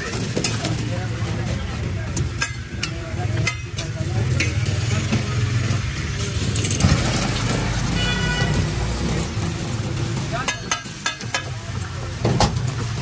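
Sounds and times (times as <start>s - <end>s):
eggs sizzling on griddle: 0.0s - 13.0s
metal spatula scraping and tapping: 2.1s - 5.2s, 10.4s - 11.8s.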